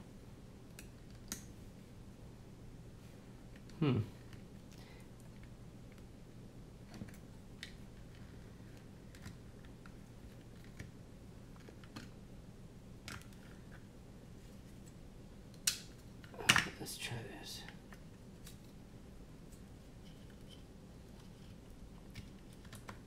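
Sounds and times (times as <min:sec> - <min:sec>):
low steady hum: 0:00.0 - 0:23.0.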